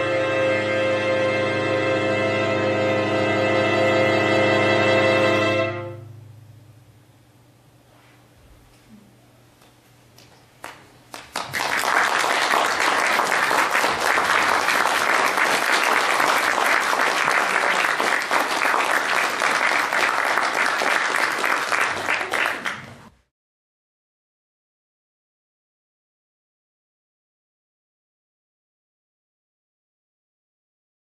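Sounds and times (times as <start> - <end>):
audience applauding: 10.6 - 23.1.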